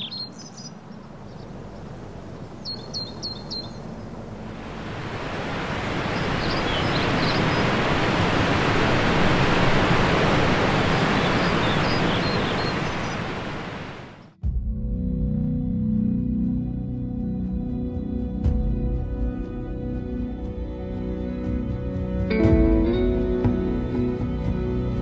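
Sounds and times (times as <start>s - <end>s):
birds chirping: 0.0s - 14.4s.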